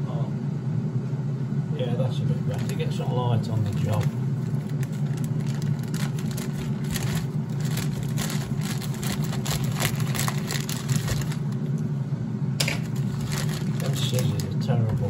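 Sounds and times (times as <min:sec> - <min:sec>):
air fryer fan whirring: 0:00.0 - 0:15.0.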